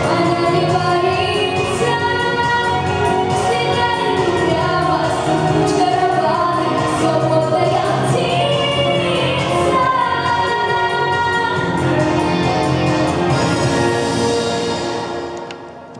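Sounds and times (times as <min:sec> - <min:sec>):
girl singing into microphone: 0:00.0 - 0:11.8
backing track music: 0:00.0 - 0:15.9.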